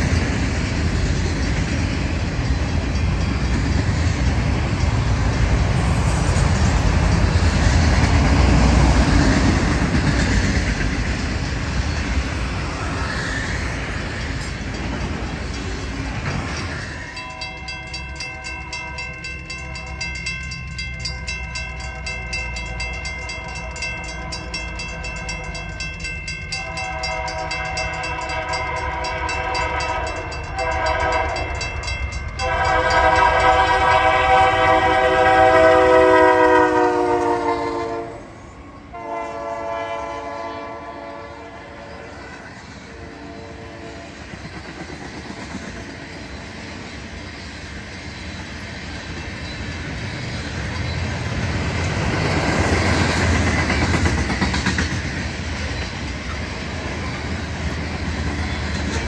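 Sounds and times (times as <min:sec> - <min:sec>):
train wheels rumbling and clacking: 0:00.0 - 0:59.0
locomotive air horn blasts: 0:26.6 - 0:31.5, 0:32.4 - 0:44.2.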